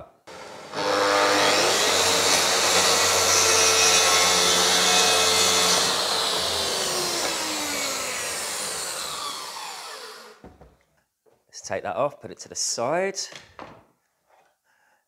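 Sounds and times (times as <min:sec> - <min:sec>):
dust extractor running: 0:00.3 - 0:10.4
saw blade winding down: 0:00.3 - 0:10.4
track saw cutting: 0:00.3 - 0:10.4.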